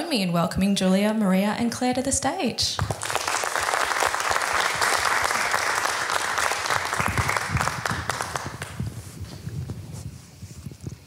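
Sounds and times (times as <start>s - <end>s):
audience applauding: 2.8s - 8.9s.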